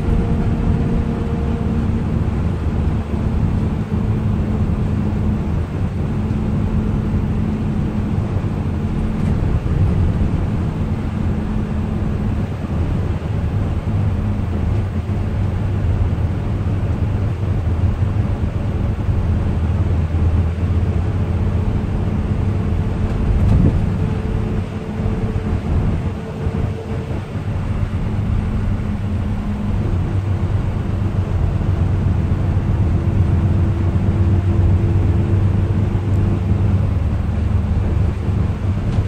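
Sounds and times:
coach engine drone: 0.0s - 39.0s
road noise: 0.0s - 39.0s.

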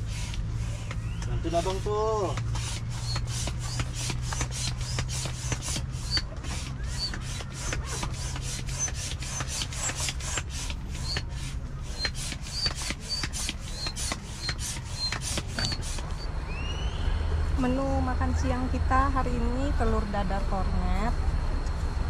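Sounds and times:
rubbing or scraping strokes: 0.0s - 16.3s.

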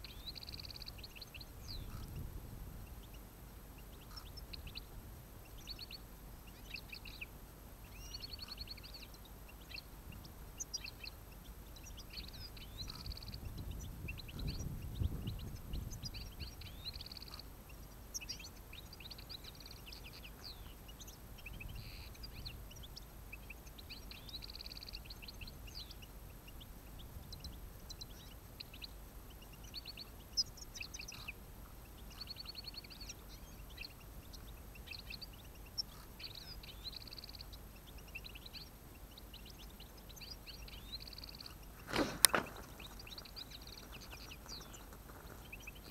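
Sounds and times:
goldfinches singing and twittering: 0.0s - 2.2s, 7.9s - 41.8s.

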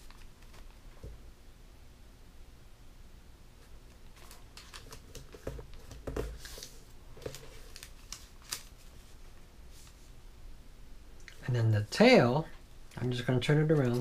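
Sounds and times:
paper rustling and crinkling: 0.0s - 0.9s, 4.0s - 10.1s, 13.0s - 14.0s.

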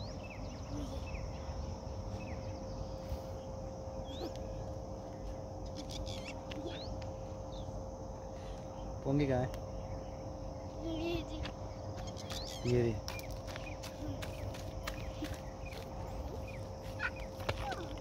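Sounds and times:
steady high hiss: 0.0s - 13.6s
small birds chirping: 0.0s - 18.0s.

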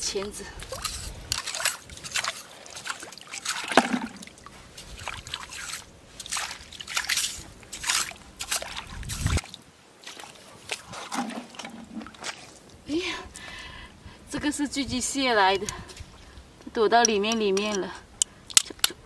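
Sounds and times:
shallow water sloshing and splashing: 0.6s - 12.8s.

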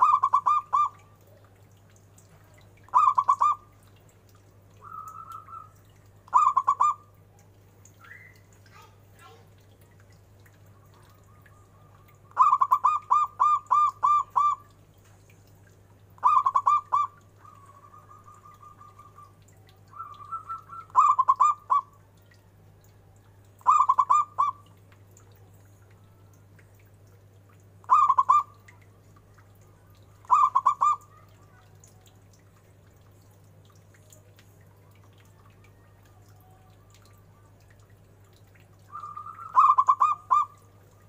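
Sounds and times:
dove cooing: 0.0s - 1.1s, 2.9s - 3.7s, 4.8s - 7.0s, 10.9s - 14.7s, 16.2s - 21.9s, 23.6s - 24.6s, 27.9s - 28.6s, 30.2s - 31.6s, 38.9s - 40.7s.

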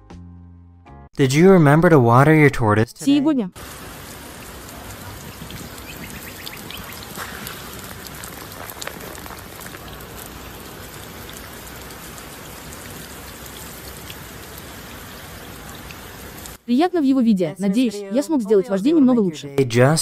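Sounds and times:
hose water spraying on shell: 3.6s - 16.6s.

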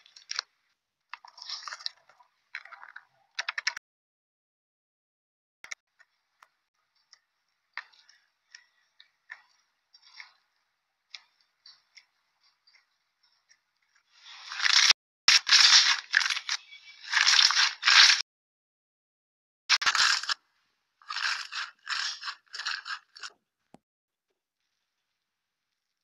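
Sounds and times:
slime squishing: 1.1s - 3.8s.

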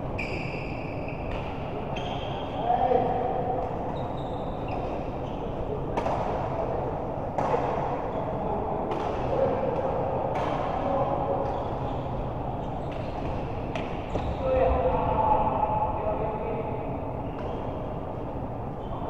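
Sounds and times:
background murmur: 1.2s - 19.0s
racket hitting ball: 6.0s - 6.5s, 7.3s - 8.0s.

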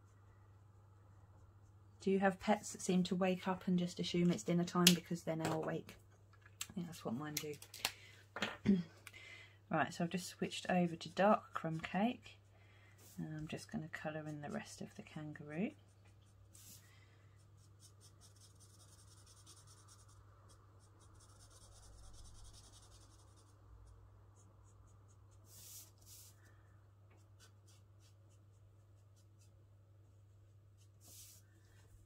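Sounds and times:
low steady hum: 0.0s - 32.0s
marker scratching on card: 17.6s - 23.6s, 24.4s - 26.3s.

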